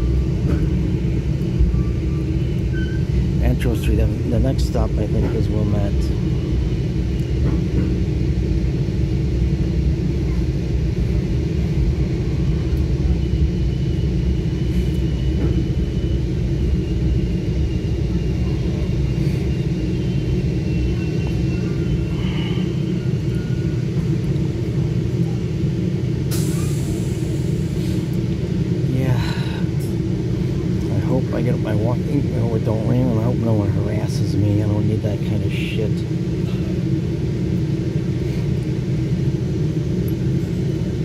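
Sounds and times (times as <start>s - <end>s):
train coach rumble: 0.0s - 41.0s
air brake hiss: 26.3s - 28.1s.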